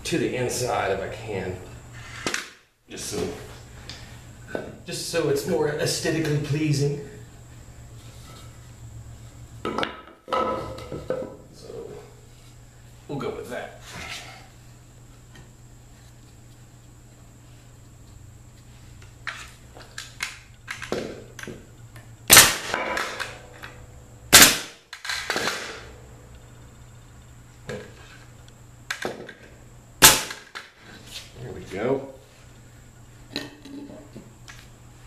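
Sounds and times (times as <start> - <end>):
nail gun bangs: 22.3 - 23.4, 30.0 - 30.6.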